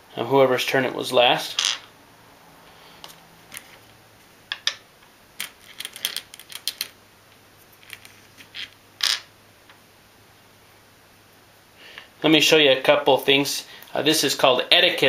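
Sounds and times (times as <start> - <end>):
glass gems clicking on wood: 5.4 - 7.0.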